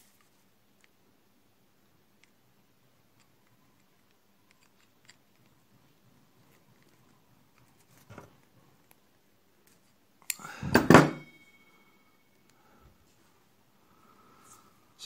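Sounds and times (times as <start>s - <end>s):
small parts clicking: 3.2s - 5.6s.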